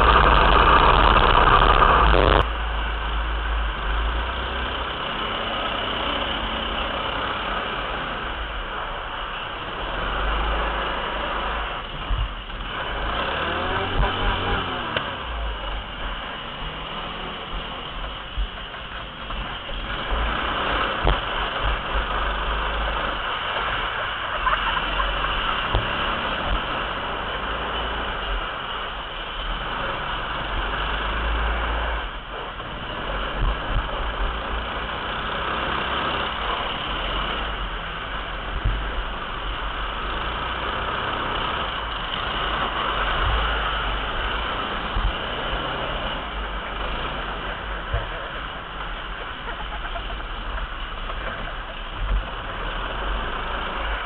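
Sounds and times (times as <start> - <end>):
deep rumble: 0.0 - 5.3
small kart engine running: 0.0 - 54.0.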